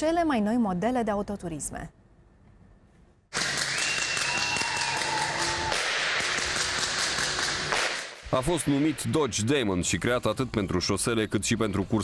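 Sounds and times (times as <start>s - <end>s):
crowd applauding: 3.3s - 8.2s.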